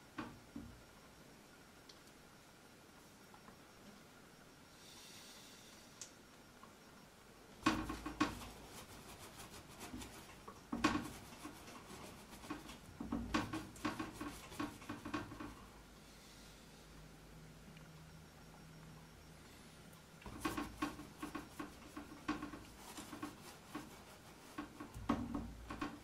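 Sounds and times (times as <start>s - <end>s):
paintbrush strokes on canvas: 7.8s - 15.6s, 20.2s - 26.0s.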